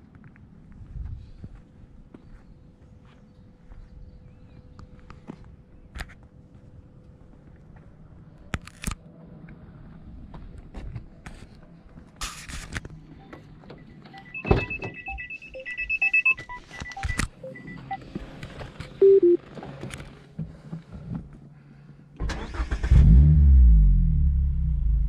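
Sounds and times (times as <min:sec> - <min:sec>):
short electronic beeps: 0:13.2 - 0:18.1, 0:19.0 - 0:19.4
car engine starting and idling: 0:22.2 - 0:25.0.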